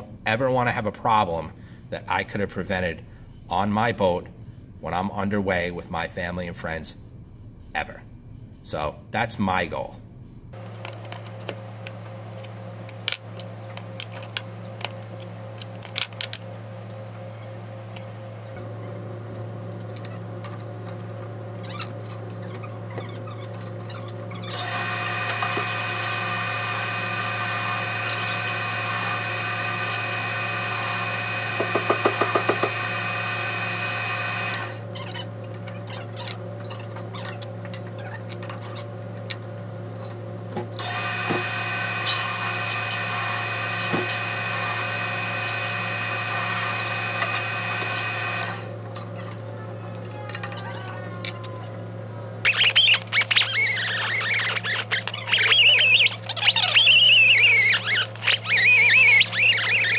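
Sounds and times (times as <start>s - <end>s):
low steady hum: 0.0s - 31.6s
lathe gear whine: 10.1s - 49.2s, 51.8s - 59.9s
drill bit squealing: 21.6s - 38.9s, 40.8s - 48.7s, 52.4s - 59.9s.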